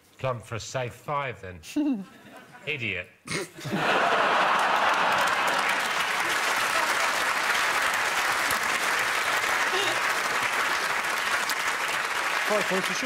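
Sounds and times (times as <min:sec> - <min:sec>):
studio audience applause: 0:03.8 - 0:13.0.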